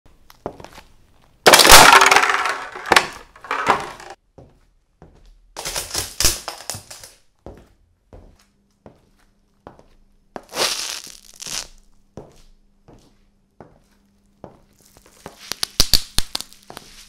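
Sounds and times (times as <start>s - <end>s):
high heel crushing plastic cups: 1.4s - 4.2s, 5.6s - 7.2s, 10.4s - 11.7s, 14.9s - 16.9s
heel crushing plastic toy: 1.5s - 4.2s, 5.6s - 7.2s, 10.5s - 11.7s, 14.9s - 16.8s.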